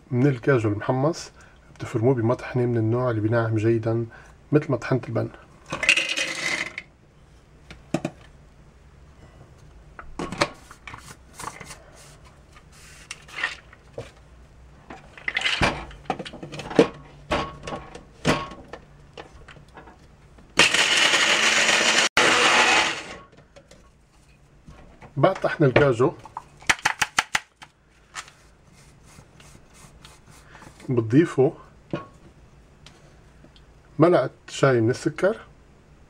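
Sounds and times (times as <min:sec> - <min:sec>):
electric grinder running: 0:20.6 - 0:23.2.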